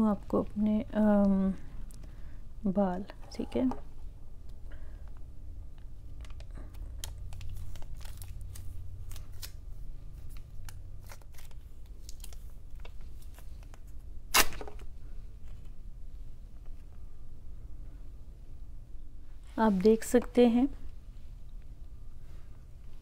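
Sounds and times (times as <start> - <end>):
plastic wax strip crinkling: 4.4 - 14.8
wax strip ripped off skin: 14.3 - 14.6.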